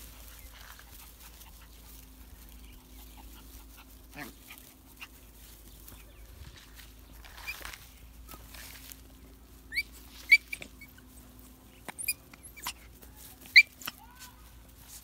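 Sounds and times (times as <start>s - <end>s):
high-pitched animal squeaks: 9.7s - 11.0s, 11.9s - 12.8s, 13.4s - 14.2s.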